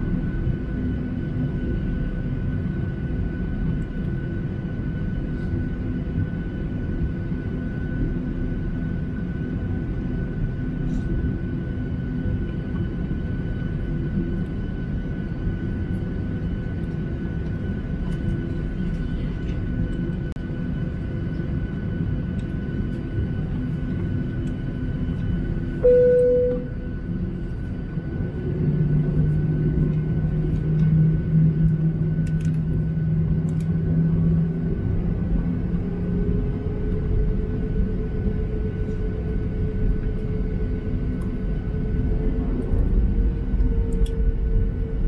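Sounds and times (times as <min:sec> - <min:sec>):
jet engines idling: 0:00.0 - 0:45.0
deep steady hum: 0:12.3 - 0:45.0
short single tone: 0:25.8 - 0:26.9.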